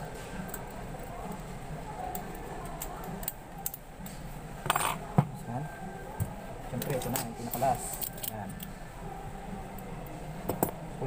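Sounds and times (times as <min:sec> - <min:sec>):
metal lock parts clicking: 0:07.9 - 0:08.7.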